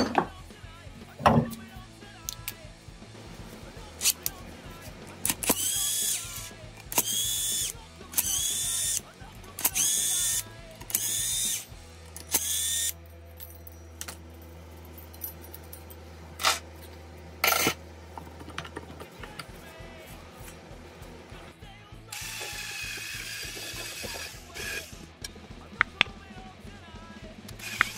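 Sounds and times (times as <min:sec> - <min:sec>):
impact wrench hammering: 0:05.2 - 0:13.0, 0:27.5 - 0:27.9.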